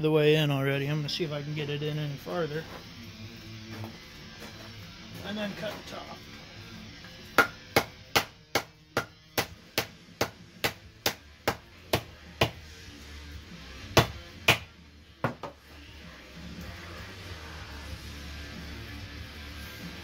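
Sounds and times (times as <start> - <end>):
mallet striking wooden wedge: 7.4 - 12.6.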